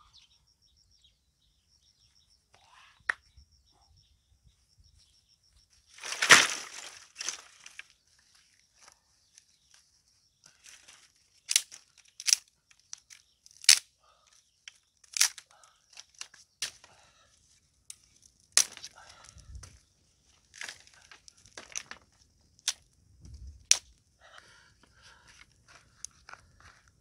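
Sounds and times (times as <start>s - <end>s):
twigs rustling and crackling: 5.8s - 27.0s
dry sticks snapping: 6.0s - 7.9s, 10.6s - 17.0s, 17.9s - 19.8s, 20.4s - 23.0s, 23.6s - 24.0s.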